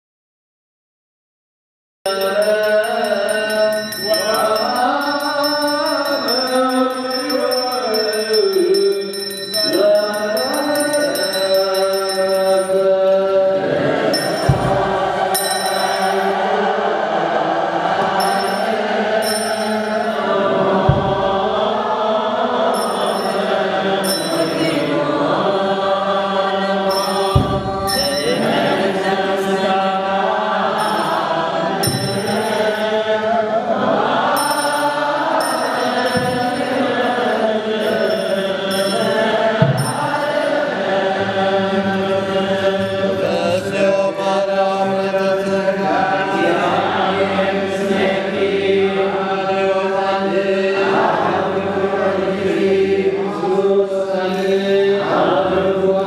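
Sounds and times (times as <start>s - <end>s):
high ringing: 2.1s - 16.6s, 18.1s - 21.5s, 22.7s - 25.4s, 26.2s - 29.8s, 30.7s - 33.2s, 34.3s - 41.3s
voices chanting together: 2.1s - 56.0s
low thumps: 14.2s - 15.2s, 20.8s - 21.6s, 27.3s - 28.2s.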